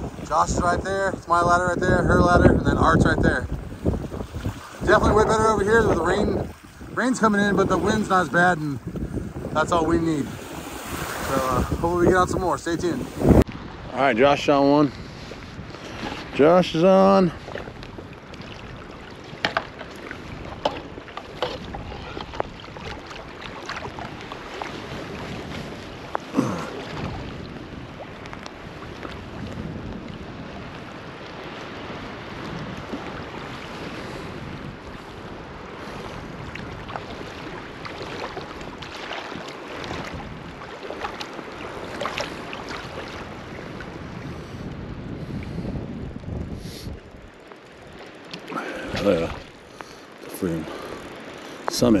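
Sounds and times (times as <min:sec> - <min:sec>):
lake waves washing: 0:00.0 - 0:52.0
wind buffeting microphone: 0:00.0 - 0:52.0.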